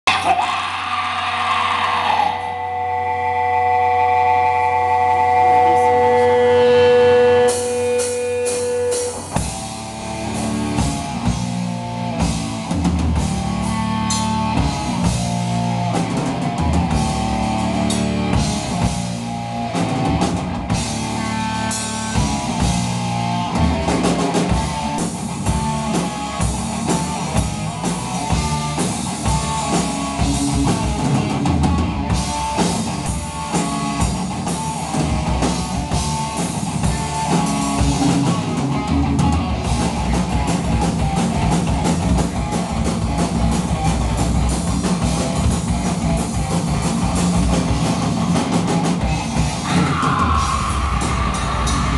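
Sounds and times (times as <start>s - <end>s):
heavy metal band playing live: 0.0s - 51.9s
held guitar note ringing: 2.6s - 9.5s
pounding drums: 7.5s - 51.9s.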